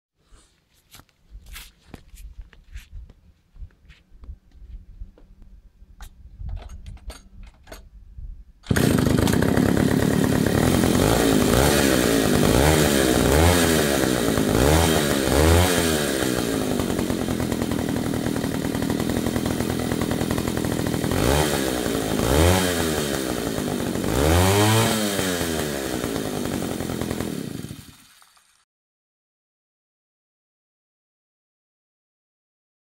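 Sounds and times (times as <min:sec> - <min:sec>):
chainsaw engine revving and idling: 0:08.6 - 0:28.2.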